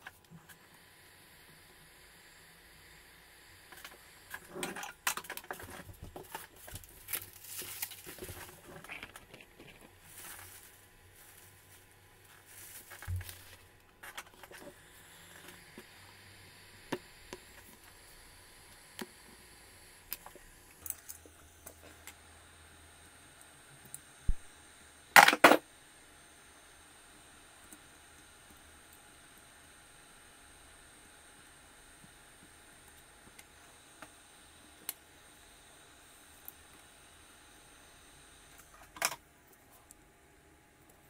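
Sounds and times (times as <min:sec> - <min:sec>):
scraping and rustling: 0:05.5 - 0:14.8.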